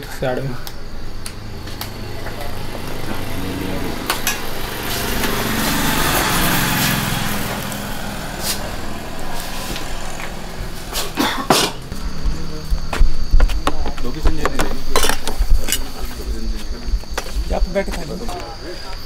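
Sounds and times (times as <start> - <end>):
engine humming: 0.0 - 18.8
rushing noise: 0.7 - 14.2.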